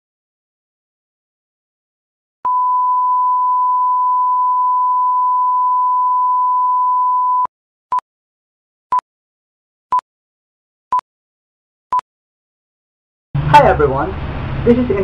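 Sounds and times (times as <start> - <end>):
steady pure test tone beep: 2.5 - 8.0.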